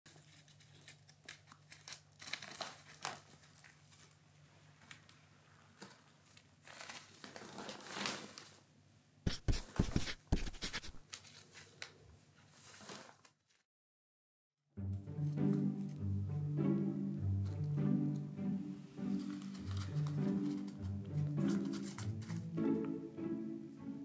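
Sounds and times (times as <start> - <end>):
nylon tunnel crinkling and rustling: 0.1 - 8.7, 11.1 - 13.6.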